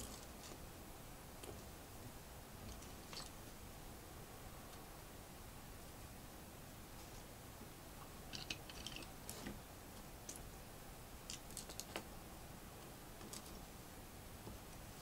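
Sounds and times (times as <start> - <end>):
plastic pieces clicking: 8.3 - 9.1.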